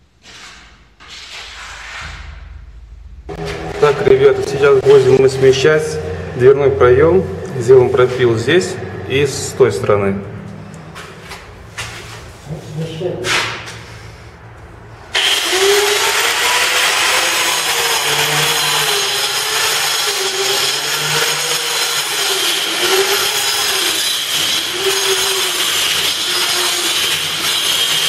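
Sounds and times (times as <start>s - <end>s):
angle grinder cutting concrete: 3.4s - 9.7s, 15.1s - 28.0s.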